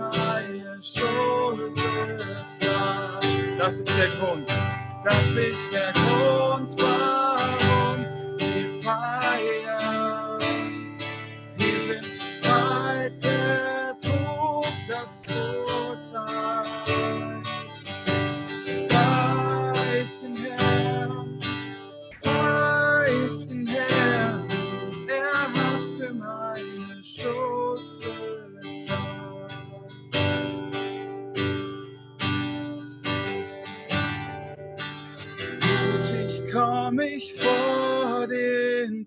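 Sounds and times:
man singing: 0.0 - 30.4, 35.6 - 39.0
acoustic guitar strumming: 0.0 - 39.0.

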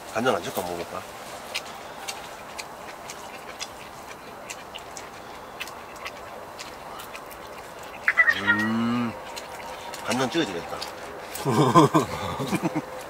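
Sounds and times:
crunching and chewing: 0.0 - 13.0.

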